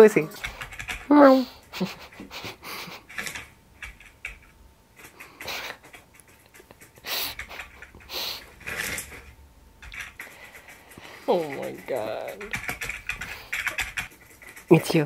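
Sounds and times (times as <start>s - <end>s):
keyboard typing: 0.1s - 15.0s
breathy hissing bursts: 7.0s - 8.6s.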